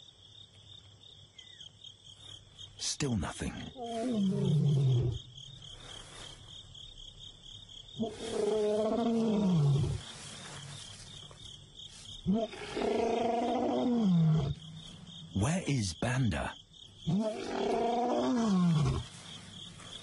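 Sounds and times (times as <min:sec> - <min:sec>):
lion roaring: 0:03.7 - 0:05.3, 0:08.0 - 0:10.2, 0:12.2 - 0:14.6, 0:17.1 - 0:19.2.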